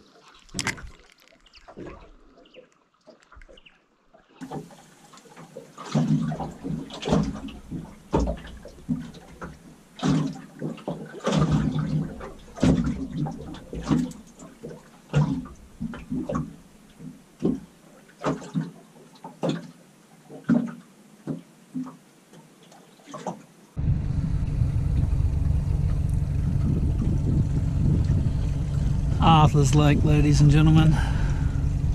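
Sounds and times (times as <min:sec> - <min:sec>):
waves slapping metal hull: 0:00.0 - 0:22.0, 0:22.7 - 0:31.9
boat rushing under way: 0:23.8 - 0:31.9.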